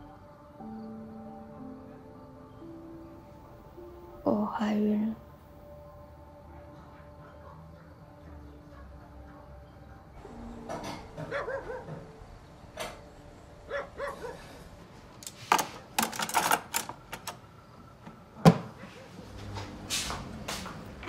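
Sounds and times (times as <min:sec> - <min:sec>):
dog barking: 0:06.5 - 0:09.6, 0:11.2 - 0:12.1, 0:13.7 - 0:14.6.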